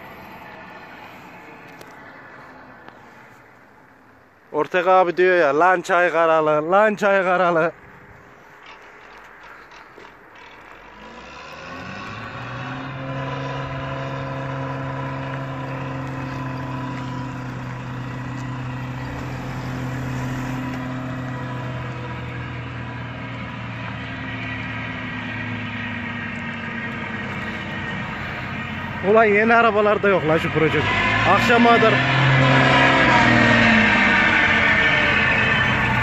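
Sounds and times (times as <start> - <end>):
truck diesel engine running: 8.6 - 36.0.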